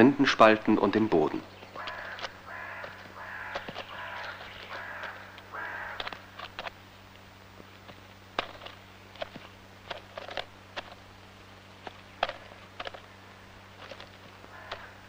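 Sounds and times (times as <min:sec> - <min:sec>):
low steady hum: 0:00.0 - 0:15.0
bird pecking at bark: 0:01.6 - 0:06.7, 0:07.9 - 0:11.0, 0:11.8 - 0:15.0.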